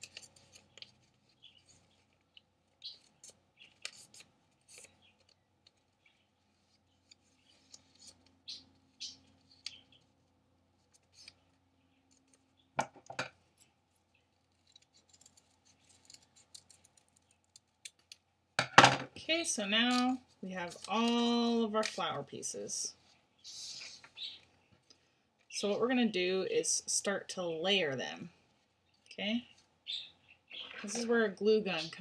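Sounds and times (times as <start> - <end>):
paper rustling: 0.0 - 12.4, 13.5 - 17.4, 19.8 - 22.2.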